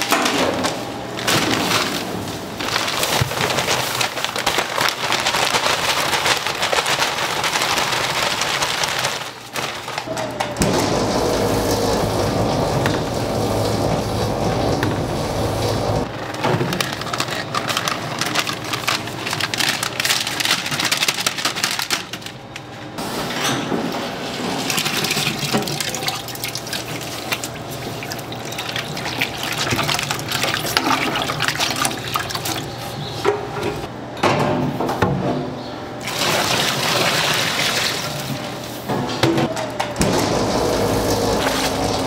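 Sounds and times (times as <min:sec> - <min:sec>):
water running: 0:10.8 - 0:16.1, 0:24.5 - 0:32.7, 0:40.0 - 0:42.0.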